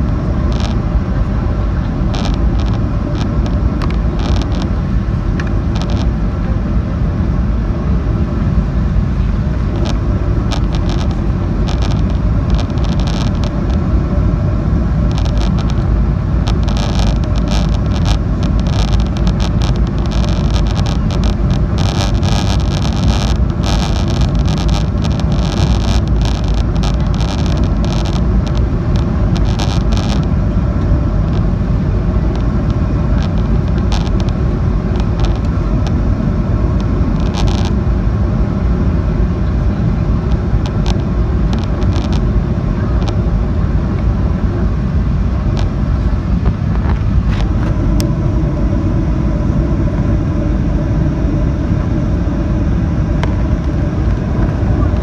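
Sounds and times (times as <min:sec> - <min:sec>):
light crackling rattles: 0:00.0 - 0:06.2, 0:09.5 - 0:14.0, 0:14.6 - 0:37.9, 0:39.3 - 0:43.9
airplane cabin engine roar: 0:00.0 - 0:55.0
faint steady hum: 0:00.0 - 0:55.0.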